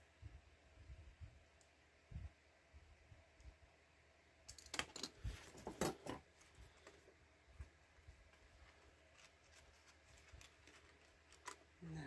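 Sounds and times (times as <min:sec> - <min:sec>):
paper rustling: 0:08.2 - 0:11.8.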